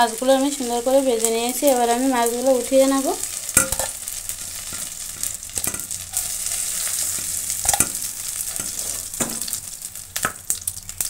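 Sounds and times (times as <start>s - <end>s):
fish sizzling in hot oil: 0.0s - 11.0s
spatula knocking and scraping pan: 3.5s - 4.0s, 4.6s - 9.6s.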